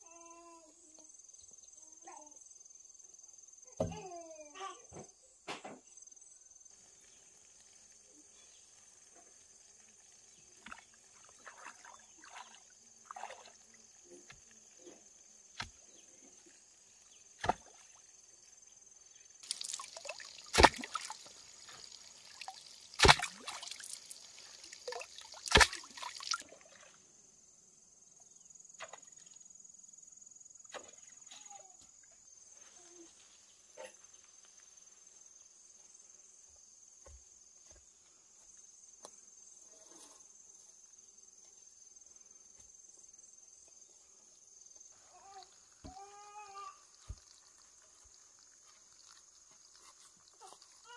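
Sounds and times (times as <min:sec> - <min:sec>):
crickets chirping: 0:00.0 - 0:50.9
water pouring and splashing: 0:06.7 - 0:15.0, 0:15.6 - 0:18.4, 0:19.4 - 0:27.0, 0:46.8 - 0:50.9
loud splashes: 0:19.4 - 0:27.0.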